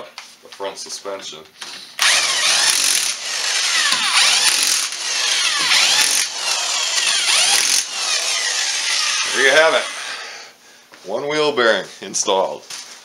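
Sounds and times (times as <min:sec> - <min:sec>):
impact wrench whirring: 0:02.0 - 0:10.4.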